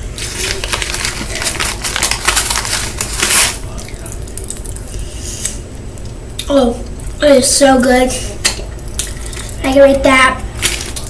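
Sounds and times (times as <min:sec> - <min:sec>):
candy packet crinkling: 0:00.0 - 0:05.6, 0:10.5 - 0:11.0.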